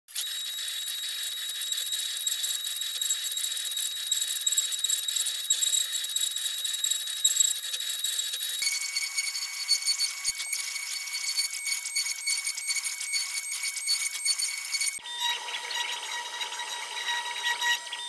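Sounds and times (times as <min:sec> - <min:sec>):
router spindle whining: 0:00.1 - 0:18.0.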